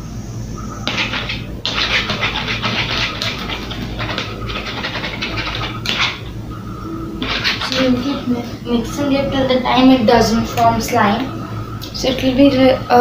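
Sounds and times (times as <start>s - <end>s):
steady low hum: 0.0s - 13.0s
spoon scraping sticky mixture: 0.8s - 6.3s, 7.2s - 8.3s.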